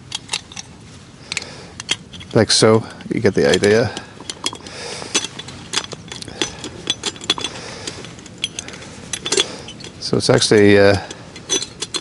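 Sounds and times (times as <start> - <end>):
metal stove clicking and clinking: 3.3 - 12.0.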